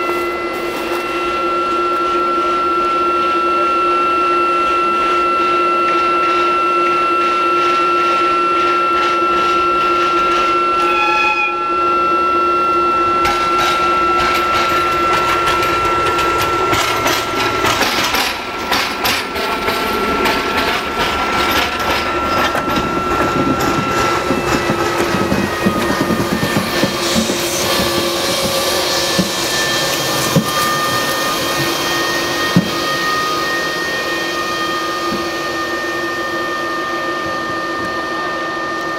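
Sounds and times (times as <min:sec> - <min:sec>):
high electrical whine: 0:00.0 - 0:38.9
short horn tone: 0:10.4 - 0:14.4.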